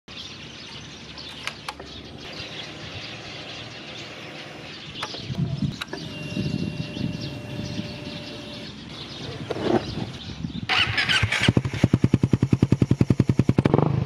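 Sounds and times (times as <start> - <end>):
birds chirping: 0.1 - 13.4
sharp clicks: 1.3 - 1.9.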